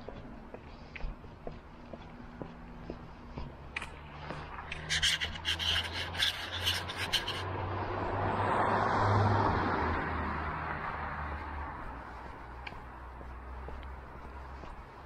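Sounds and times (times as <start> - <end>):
vehicle passing: 1.6 - 15.0
rhythmic scraping strokes: 4.6 - 7.5.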